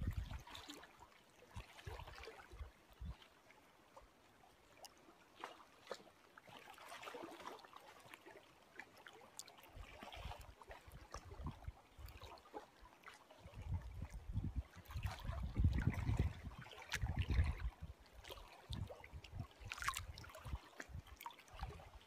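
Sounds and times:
wind gusts on microphone: 0.0 - 0.4, 13.4 - 17.9
small waves lapping: 0.0 - 22.0.

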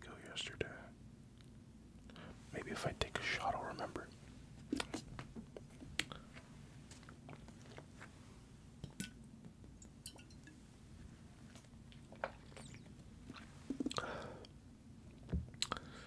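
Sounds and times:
gulping and wet mouth sounds: 11.9 - 14.2, 15.6 - 15.8.

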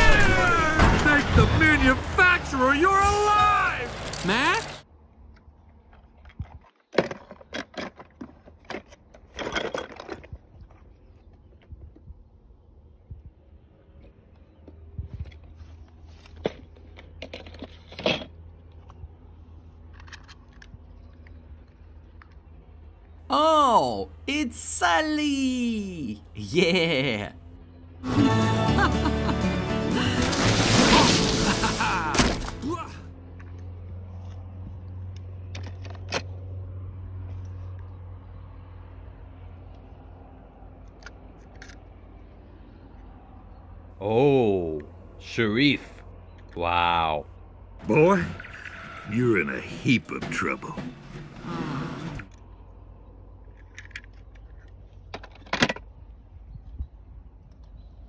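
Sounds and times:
toy cars scraping and rustling: 6.4 - 10.7, 15.2 - 18.9
toy cars clicking and knocking: 16.4 - 18.4, 19.8 - 22.4, 53.4 - 55.9.

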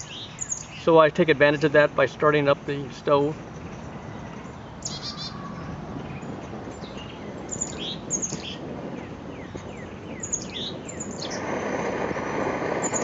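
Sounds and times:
small birds chirping: 0.0 - 11.9, 12.7 - 13.0
background hiss: 0.0 - 13.0
stove burner roaring: 6.7 - 13.0.

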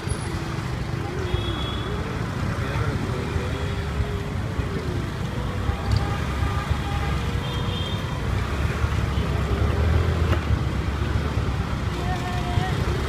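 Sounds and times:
road noise: 0.0 - 13.0.

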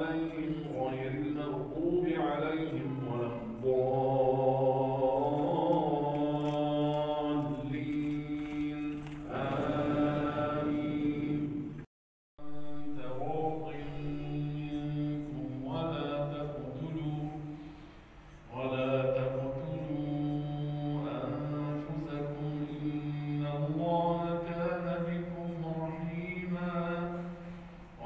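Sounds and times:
man chanting into a microphone: 0.0 - 11.6, 12.4 - 17.7, 18.5 - 28.0.

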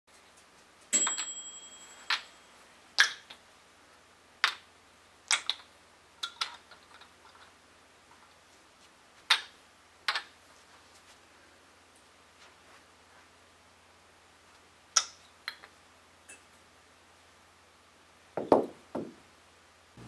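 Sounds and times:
wooden kendama clacking: 3.0 - 3.4, 4.4 - 4.6, 5.3 - 7.1, 9.3 - 10.3, 15.0 - 15.7.

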